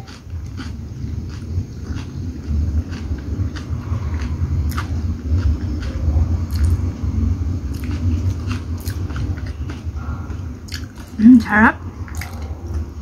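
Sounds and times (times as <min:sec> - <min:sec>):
person chewing food: 0:00.0 - 0:06.9, 0:07.7 - 0:11.2, 0:12.1 - 0:12.8
steady low rumble: 0:00.0 - 0:13.0
mouth clicks and smacks: 0:05.8 - 0:06.8, 0:10.7 - 0:11.2.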